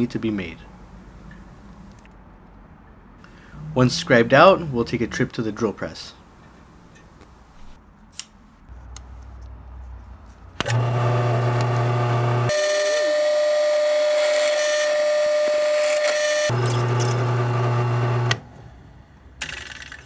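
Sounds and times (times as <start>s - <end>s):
drill bit whining into metal: 10.6s - 18.5s
drill press motor hum: 10.6s - 19.3s.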